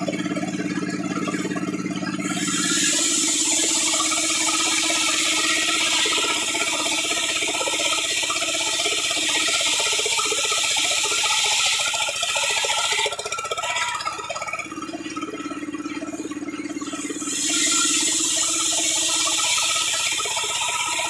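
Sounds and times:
circular saw cutting wood: 2.1 - 14.6, 16.8 - 21.0.

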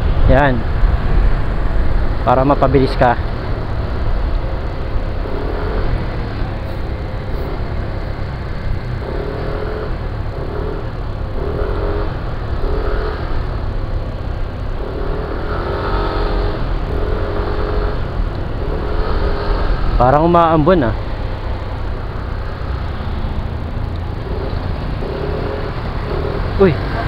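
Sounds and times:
scooter engine and road rumble: 0.0 - 27.0.

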